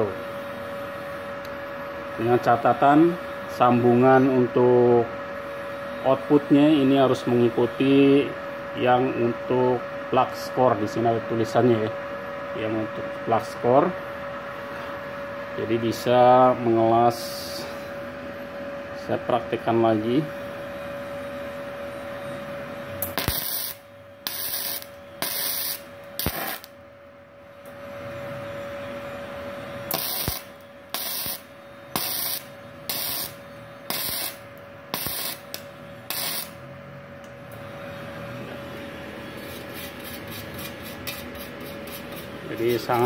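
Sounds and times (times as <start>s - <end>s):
welding arc crackling: 23.0s - 26.8s, 29.9s - 36.6s.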